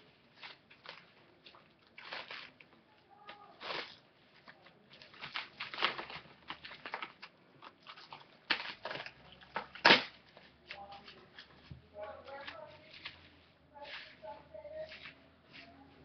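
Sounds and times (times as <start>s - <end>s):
plastic cling wrap crinkling: 0.0s - 16.0s.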